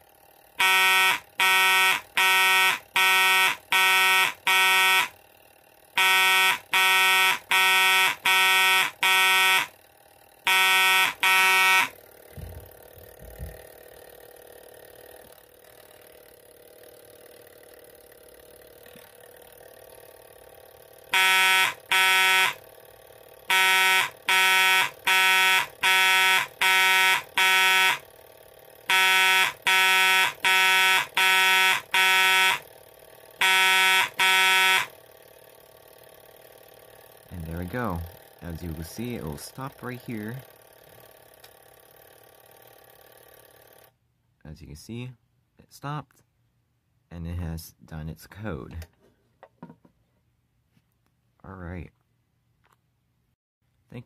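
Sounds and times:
fire alarm horn buzzing blasts: 0.5s - 5.3s, 5.9s - 12.1s, 21.0s - 22.8s, 23.4s - 32.8s, 33.4s - 35.0s, 37.3s - 40.4s.

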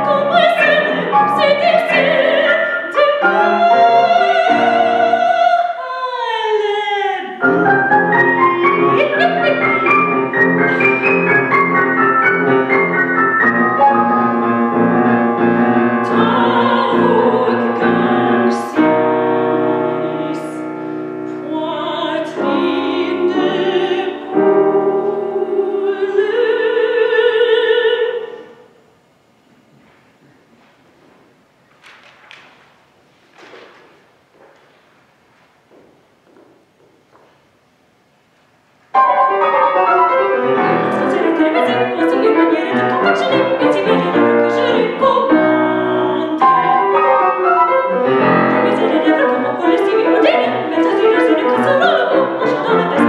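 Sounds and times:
grand piano chords: 0.0s - 5.7s, 7.3s - 28.3s, 38.9s - 53.0s
soprano singing: 0.0s - 28.6s, 39.0s - 53.0s.

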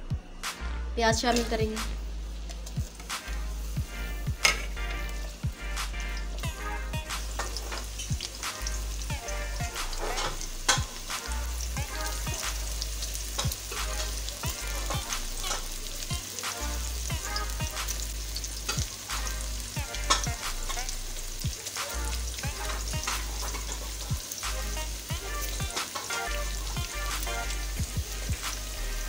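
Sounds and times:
onions sizzling in hot oil: 1.1s - 29.0s
spatula stirring: 2.4s - 3.3s, 9.9s - 11.0s, 13.4s - 15.7s, 22.7s - 24.1s.

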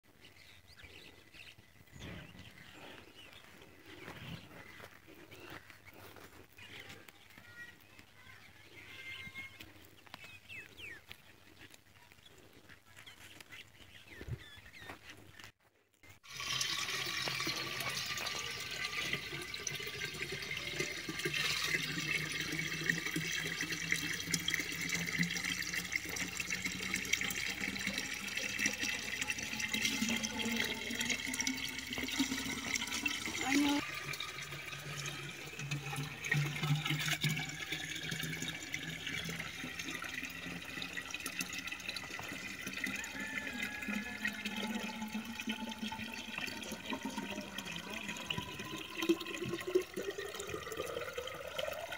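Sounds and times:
faint outdoor background: 0.0s - 51.9s
water pouring into a pot: 16.2s - 51.9s.

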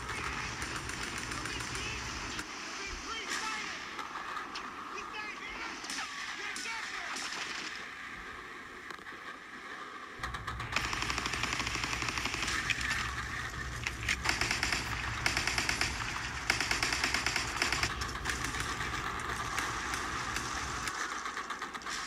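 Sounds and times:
rapid machine-gun fire: 0.0s - 2.5s, 5.9s - 8.0s, 10.2s - 22.0s
low steady rumble: 10.2s - 21.0s.

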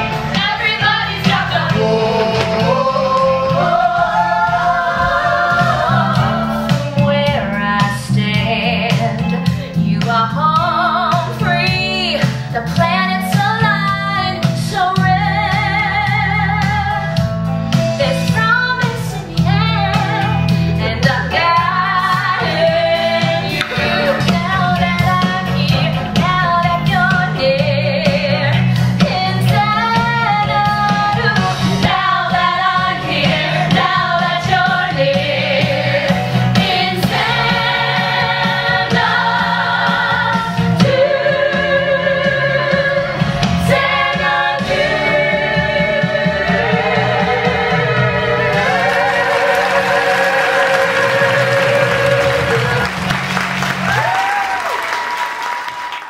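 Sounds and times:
ensemble voices singing: 0.0s - 17.2s, 18.0s - 54.0s
woman singing: 3.6s - 17.2s, 18.0s - 35.9s.

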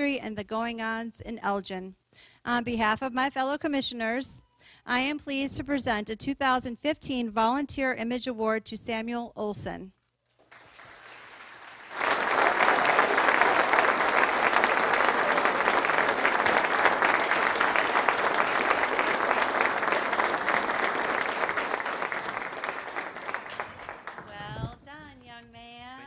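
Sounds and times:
audience applauding: 10.4s - 24.4s.

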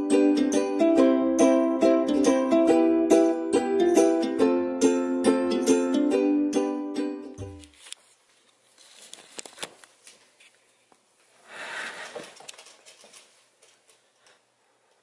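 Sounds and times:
cat paws tapping on wooden floor: 12.0s - 15.0s.

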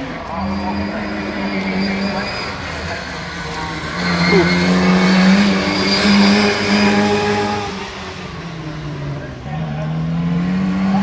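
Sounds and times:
car engine driving past: 0.3s - 11.0s.

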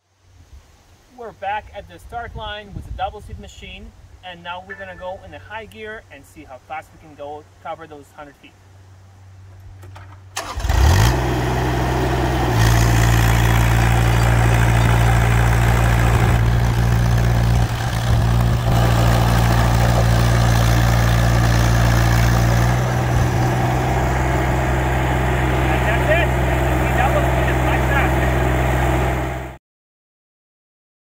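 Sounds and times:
diesel engine revving: 10.4s - 29.6s.

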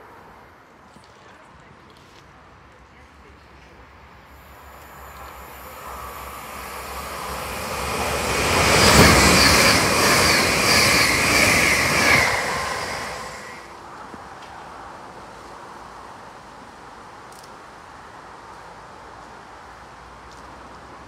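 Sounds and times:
train passing at speed: 3.8s - 17.0s
train wheel beat: 4.5s - 13.6s.

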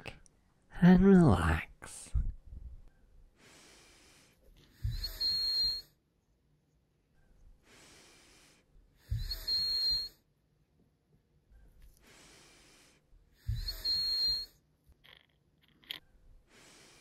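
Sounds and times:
slow breathing with whistle: 3.4s - 6.0s, 7.2s - 10.3s, 11.6s - 14.6s, 16.4s - 17.0s.

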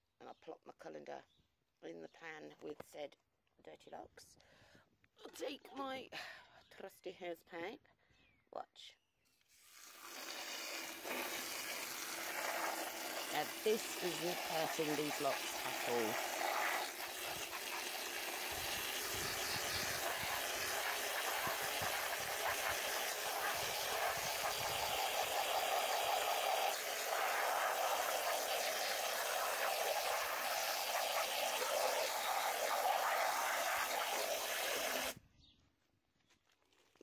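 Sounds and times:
hose spray hissing and splashing: 9.5s - 35.2s.

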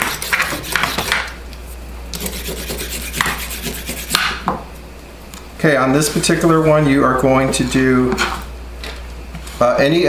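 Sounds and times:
vegetable peeler scraping carrot: 0.0s - 1.2s, 2.2s - 4.2s.

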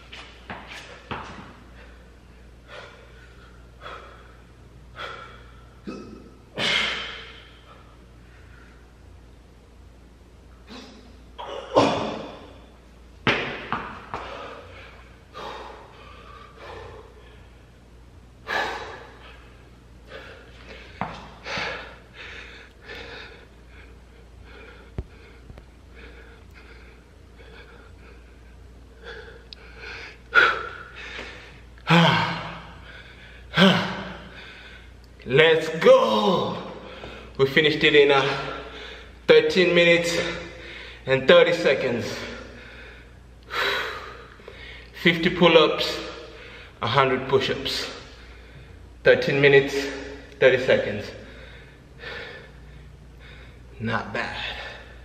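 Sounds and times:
man breathing hard and gasping: 1.6s - 5.8s, 14.1s - 17.7s, 18.4s - 35.0s, 40.1s - 41.0s, 42.1s - 45.0s, 51.1s - 53.8s.

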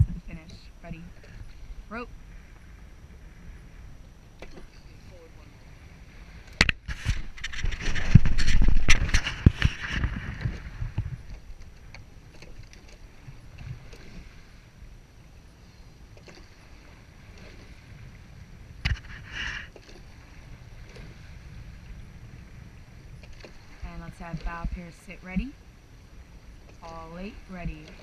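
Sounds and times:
oar blades splashing water: 6.1s - 14.7s, 15.6s - 21.8s, 23.2s - 24.8s, 26.6s - 28.0s.

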